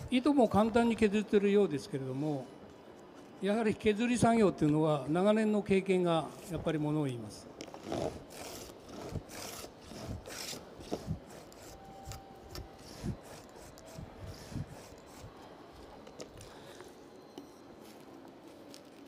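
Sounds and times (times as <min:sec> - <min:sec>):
hand plane rasping across wood: 0:07.8 - 0:11.8.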